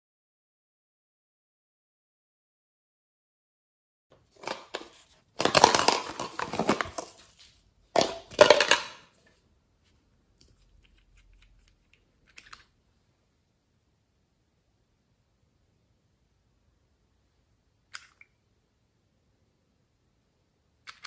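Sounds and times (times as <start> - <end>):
plastic crinkling: 4.3 - 9.0.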